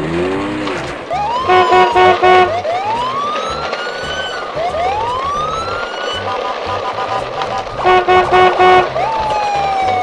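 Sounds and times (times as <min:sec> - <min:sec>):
background music: 0:00.9 - 0:10.0
rising siren whoops: 0:01.0 - 0:06.6, 0:07.8 - 0:10.0
horn toots: 0:01.5 - 0:02.6, 0:06.2 - 0:09.0.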